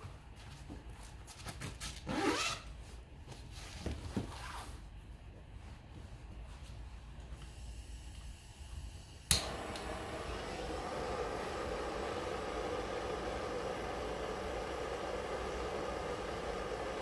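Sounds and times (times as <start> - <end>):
blowtorch flame hissing: 7.4 - 17.0
blowtorch ignition click: 9.2 - 17.0.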